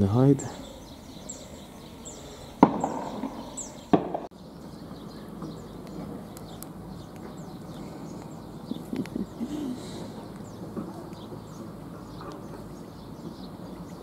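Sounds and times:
shotgun shots echoing: 0:02.6 - 0:04.3.

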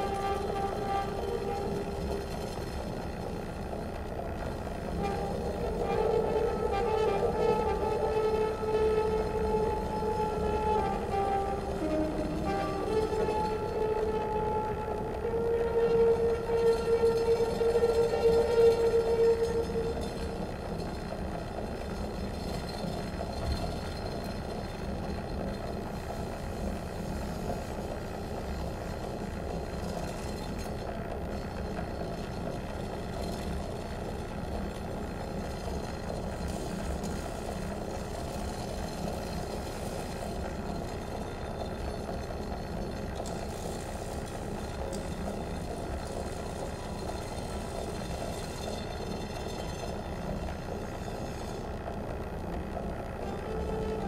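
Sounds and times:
dense electronic drone: 0:00.0 - 0:22.1.

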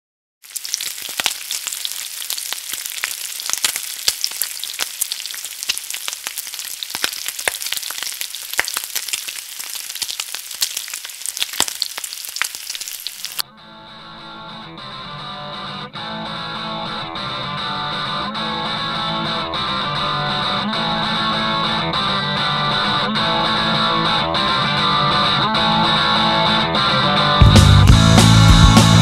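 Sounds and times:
crackling hiss with pops: 0:00.5 - 0:13.4
quiet guitar music: 0:13.4 - 0:29.0.

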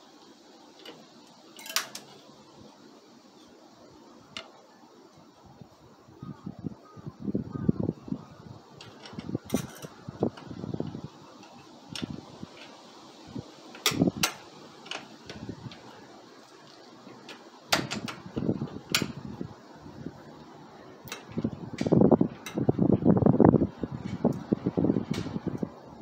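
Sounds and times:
sharp metal clicks and clinks: 0:01.6 - 0:02.1
low rustling handling noise: 0:07.9 - 0:26.0.

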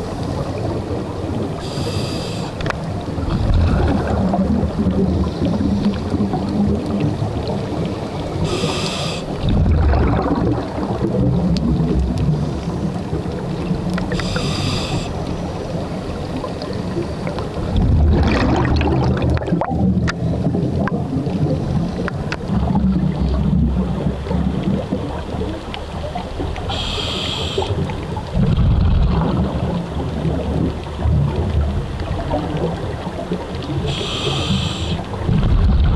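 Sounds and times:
exhaled bubbles rumbling: 0:00.0 - 0:35.9
regulator inhale hiss: 0:01.6 - 0:02.7, 0:08.4 - 0:09.4, 0:14.1 - 0:15.2, 0:26.7 - 0:27.8, 0:33.8 - 0:35.2.

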